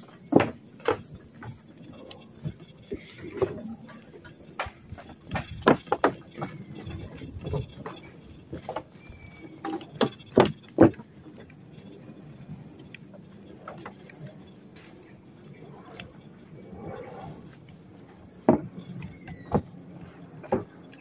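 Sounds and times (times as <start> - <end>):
footsteps on wooden boardwalk: 0.0 - 21.0
high-pitched insect drone: 0.0 - 21.0.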